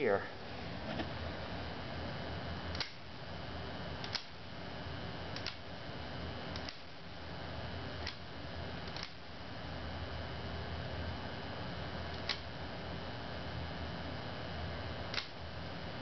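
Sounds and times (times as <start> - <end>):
rotary switch clicking: 2.7 - 3.0, 4.0 - 4.3, 5.4 - 5.6, 8.0 - 8.2, 8.9 - 9.2, 12.2 - 12.4, 15.1 - 15.4.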